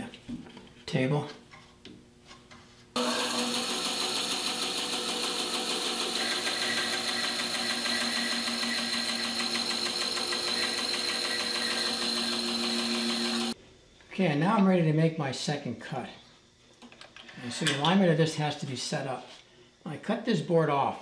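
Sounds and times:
band saw humming: 0:03.0 - 0:13.6
saw blade cutting wood: 0:03.0 - 0:13.6.

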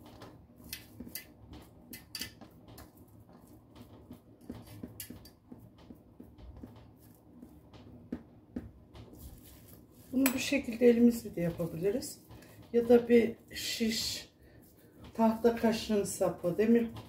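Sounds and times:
hands handling minced meat: 0:09.1 - 0:10.8.

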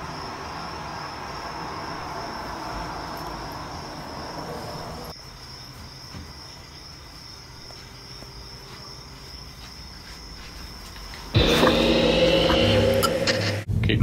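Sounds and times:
steady high-pitched whine: 0:11.4 - 0:13.8.

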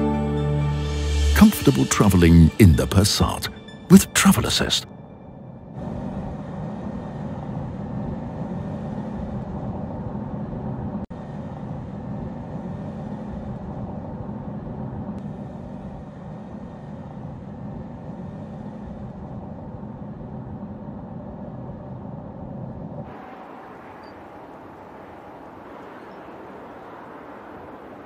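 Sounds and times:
car engine and road noise: 0:22.4 - 0:28.0.

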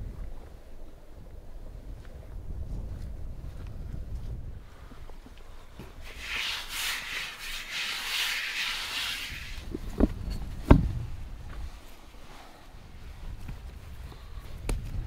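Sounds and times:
hands rubbing flour on wood: 0:06.0 - 0:09.6.

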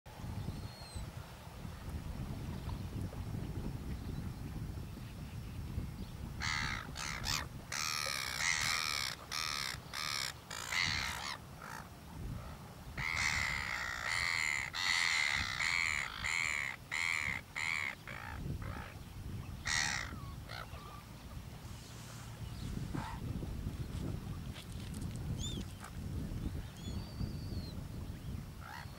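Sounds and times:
wind: 0:00.1 - 0:28.9
seabird squawking: 0:06.4 - 0:11.9, 0:13.0 - 0:19.0, 0:19.7 - 0:21.1.

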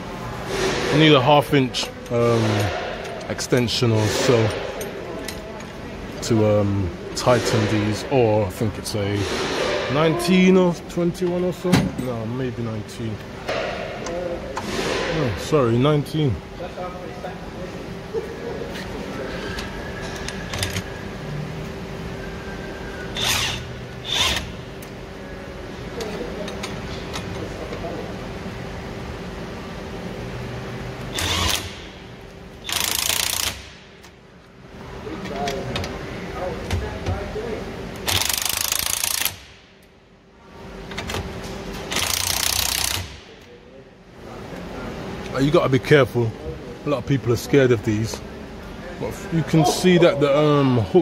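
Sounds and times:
steady background hum: 0:00.0 - 0:51.0
ratchet clicking rapidly: 0:23.2 - 0:24.6, 0:31.1 - 0:31.8, 0:32.6 - 0:33.8, 0:38.0 - 0:39.5, 0:41.9 - 0:43.2
impact wrench hammering: 0:41.9 - 0:43.3.

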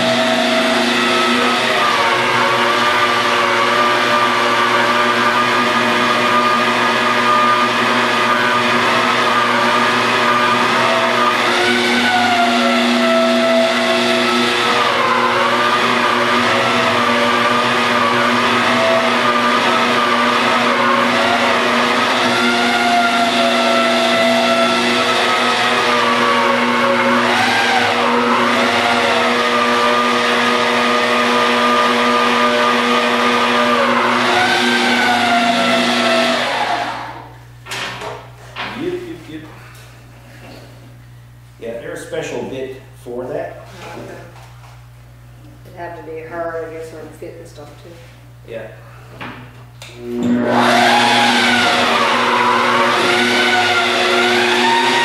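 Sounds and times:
magnetic drill boring through steel: 0:00.0 - 0:37.3, 0:50.0 - 0:55.0.

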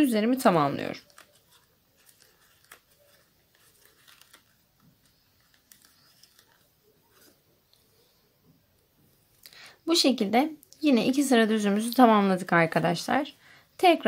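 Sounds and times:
yarn rustling: 0:00.4 - 0:08.1.

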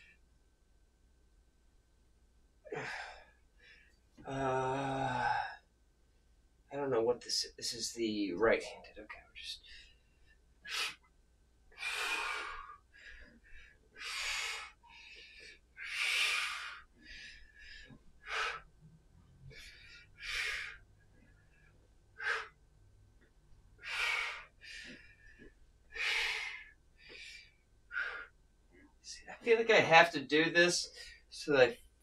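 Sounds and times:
man breathing hard: 0:02.7 - 0:05.6, 0:11.7 - 0:18.8, 0:19.4 - 0:22.6, 0:23.8 - 0:28.4.

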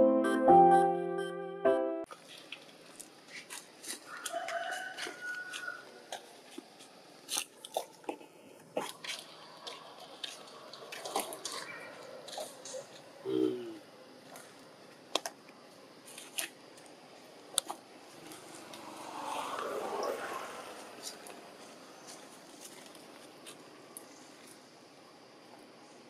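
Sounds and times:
piano music: 0:00.0 - 0:02.1.

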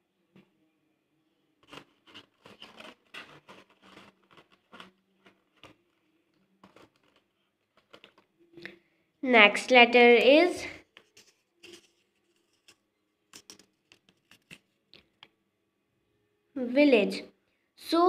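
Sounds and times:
paper rustling: 0:01.6 - 0:08.3, 0:10.8 - 0:14.8.

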